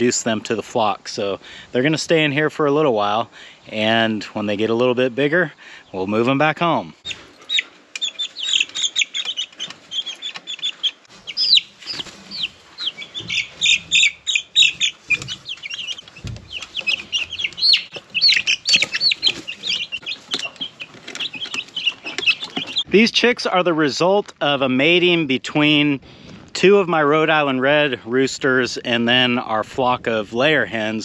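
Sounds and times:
chicks peeping: 7.0s - 22.9s
chick feet scratching: 7.0s - 23.0s.

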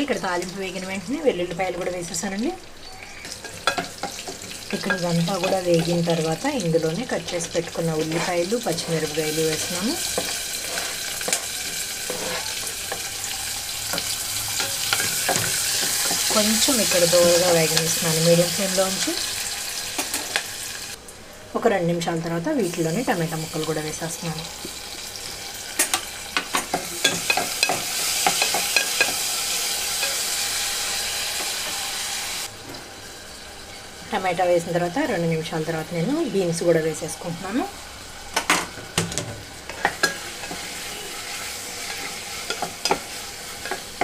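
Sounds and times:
onions sizzling in hot oil: 0.0s - 44.0s
spatula scraping and knocking pot: 8.0s - 13.1s.

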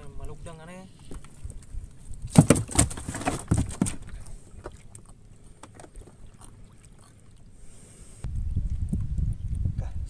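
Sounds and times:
knocks and thumps on a boat: 2.3s - 4.8s.

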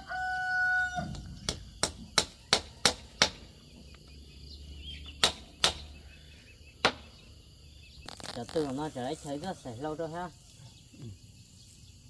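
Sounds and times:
rooster crowing: 0.0s - 1.3s.

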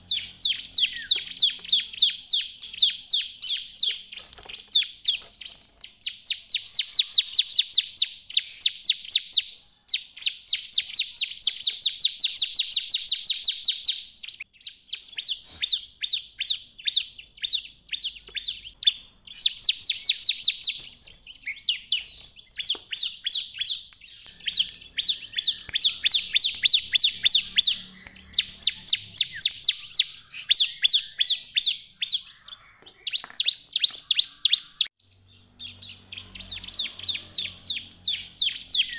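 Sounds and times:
bird singing rapid high notes: 0.0s - 38.9s.

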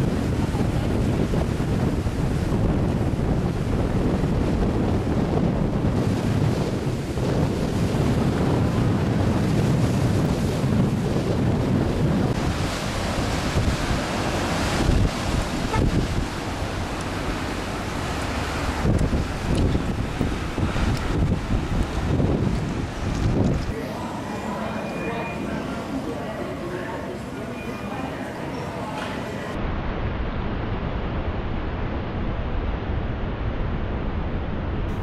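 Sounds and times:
surf breaking over rocks: 0.0s - 23.8s
wind buffeting microphone: 0.0s - 23.8s.

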